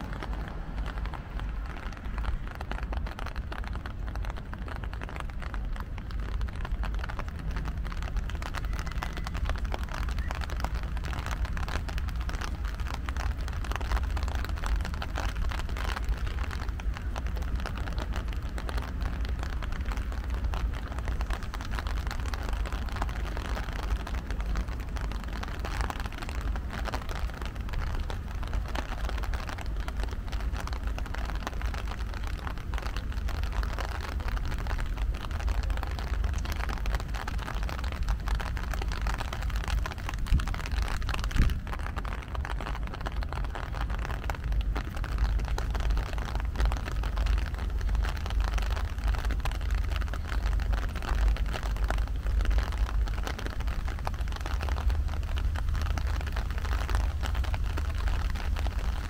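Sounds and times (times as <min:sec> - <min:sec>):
rain pattering on pavement: 0:00.0 - 0:59.0.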